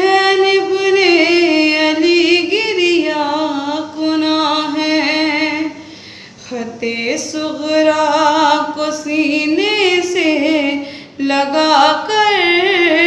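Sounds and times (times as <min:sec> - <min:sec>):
woman chanting a lament: 0:00.0 - 0:05.8.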